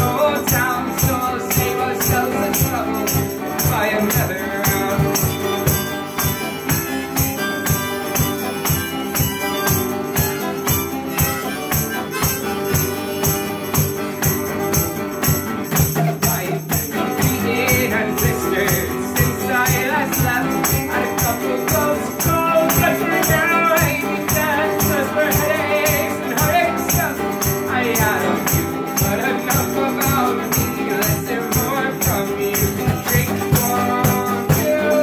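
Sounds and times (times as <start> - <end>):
man singing: 0.0 - 6.8, 15.7 - 35.0
acoustic guitar strumming: 0.0 - 35.0.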